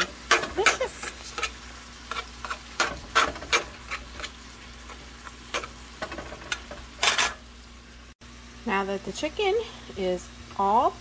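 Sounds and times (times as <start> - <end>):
utensil scraping cast iron skillet: 0.0 - 7.5.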